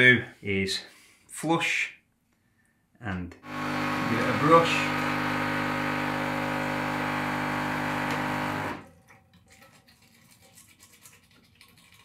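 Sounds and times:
espresso machine pump humming: 0:03.4 - 0:08.8
brush scrubbing: 0:09.4 - 0:12.0.

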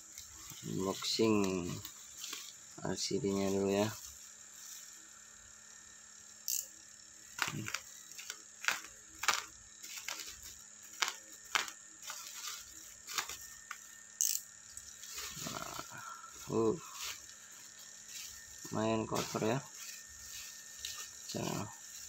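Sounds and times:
bubble wrap crackling: 0:00.0 - 0:05.0, 0:07.3 - 0:13.8, 0:14.8 - 0:22.0
high rustle: 0:00.1 - 0:05.1, 0:09.8 - 0:13.8, 0:15.0 - 0:22.0.

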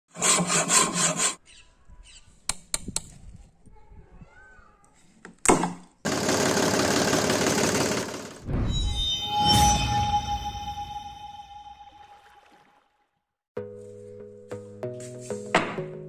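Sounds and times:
hacksaw cutting wood: 0:00.1 - 0:01.4.

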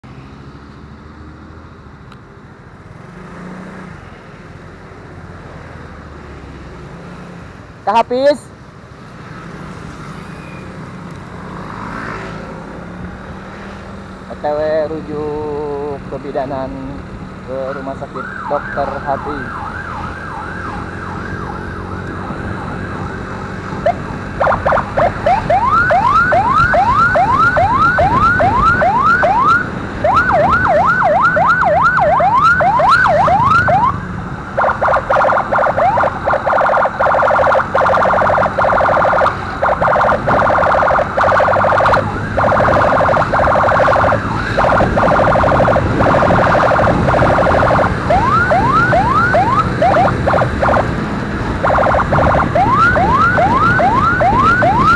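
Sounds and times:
road noise: 0:00.0 - 0:54.9
electronic emergency siren: 0:17.5 - 0:54.9
motorcycle engine: 0:19.5 - 0:54.9.

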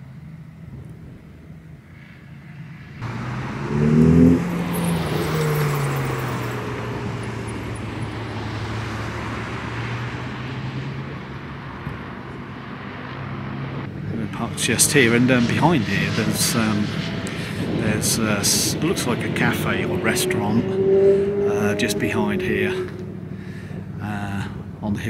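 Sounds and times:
low engine hum: 0:00.0 - 0:25.0
car driving past: 0:02.6 - 0:24.0
steady rushing noise: 0:13.7 - 0:24.9.

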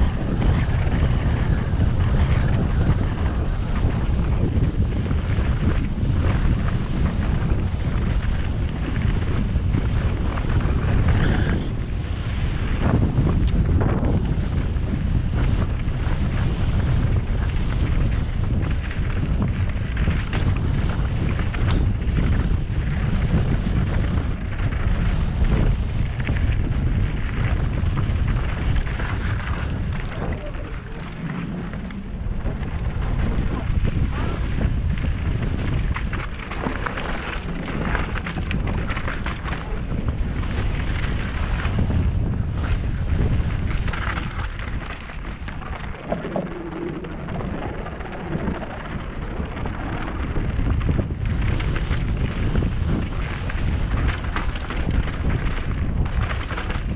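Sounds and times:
bike rattling: 0:00.0 - 0:56.9
tyres rumbling on boardwalk: 0:00.0 - 0:56.9
wind buffeting microphone: 0:00.0 - 0:56.9.

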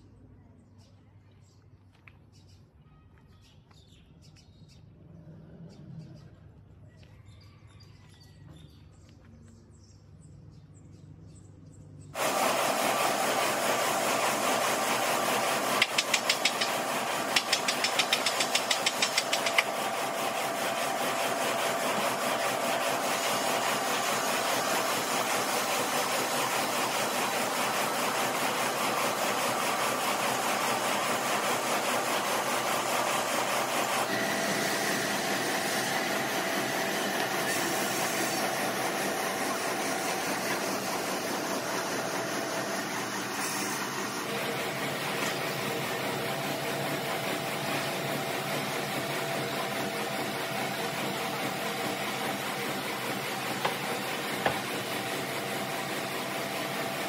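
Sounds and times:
heavy machinery running: 0:12.2 - 0:57.0
quick ticks: 0:17.3 - 0:19.7.

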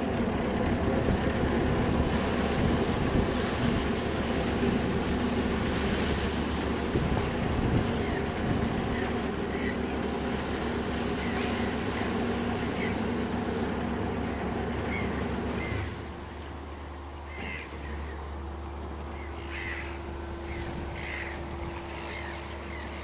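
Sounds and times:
ship engine rumbling: 0:00.0 - 0:23.0
short bird calls: 0:07.8 - 0:10.0, 0:10.8 - 0:13.2, 0:14.2 - 0:23.0.

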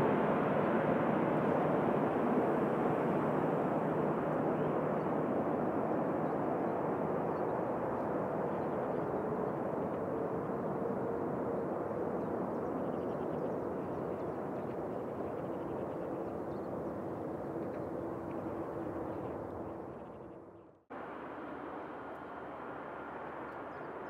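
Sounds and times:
jet engines rushing: 0:00.0 - 0:12.9.

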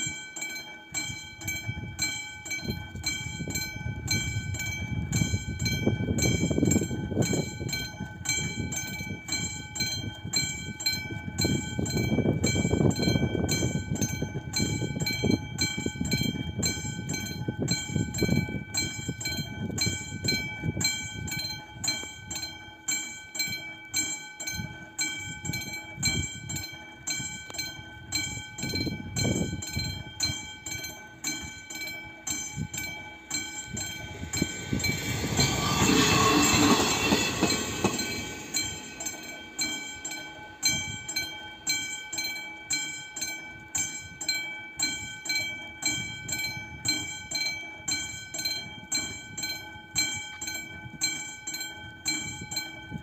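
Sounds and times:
level crossing warning bell: 0:00.0 - 0:53.0
diesel railcar passing: 0:24.4 - 0:43.3.

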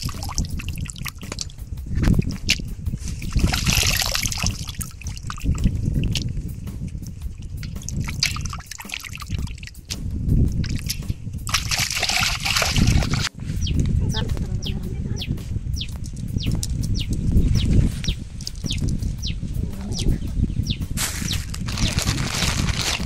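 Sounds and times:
water sloshing and trickling: 0:00.0 - 0:06.3, 0:07.3 - 0:09.8, 0:10.6 - 0:13.3, 0:21.5 - 0:23.0.

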